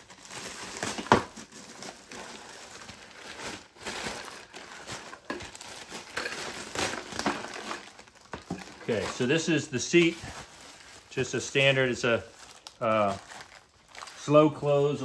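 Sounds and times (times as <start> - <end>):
plastic bag crinkling: 0.0 - 15.0.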